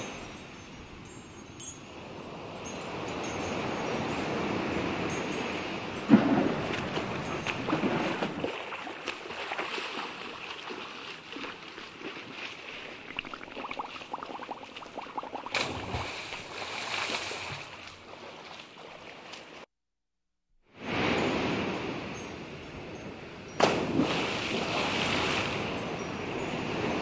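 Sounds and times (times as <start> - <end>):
water lapping and gurgling: 5.7 - 19.7, 23.6 - 27.0.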